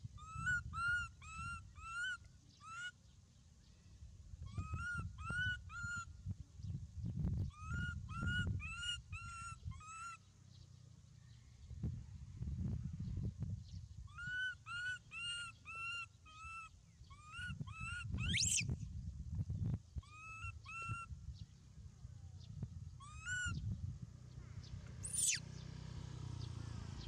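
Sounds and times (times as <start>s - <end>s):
animal calling: 18.2s - 18.6s, 25.0s - 25.4s.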